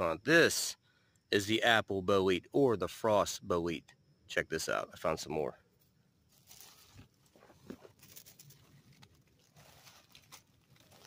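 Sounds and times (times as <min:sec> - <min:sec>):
dry leaves rustling and crackling: 0:06.3 - 0:11.0.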